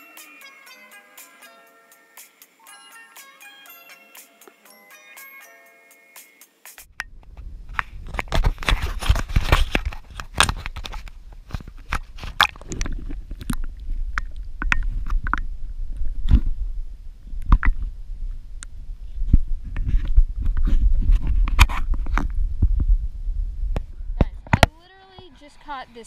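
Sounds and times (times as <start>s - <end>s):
clicks and knocks on camera housing: 7.0s - 15.5s, 17.4s - 17.8s
underwater rumble of moving water: 21.9s - 24.4s.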